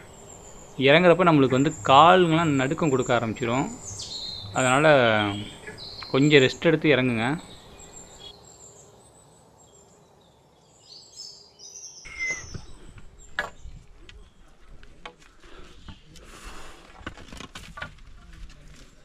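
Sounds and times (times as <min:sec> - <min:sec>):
faint bird chirps: 0:10.6 - 0:14.6
footsteps on rock steps: 0:13.9 - 0:19.0.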